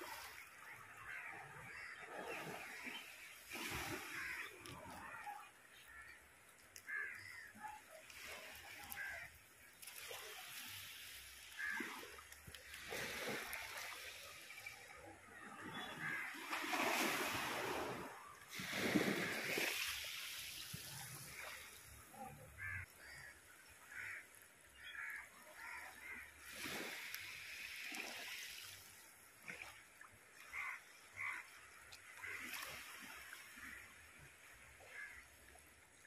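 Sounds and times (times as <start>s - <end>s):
sea waves washing on rocks: 16.1s - 21.8s.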